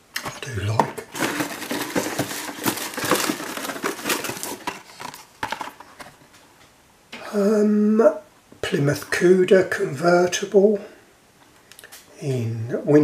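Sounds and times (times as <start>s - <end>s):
rustling cardboard and plastic packaging: 0.2s - 6.5s.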